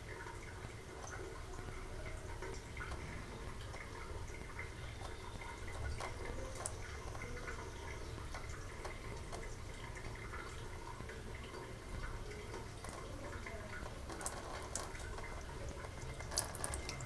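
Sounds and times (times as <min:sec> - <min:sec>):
low steady hum: 0:00.0 - 0:17.0
water drips ticking: 0:00.0 - 0:17.0
water trickling into steel sink: 0:00.0 - 0:17.0.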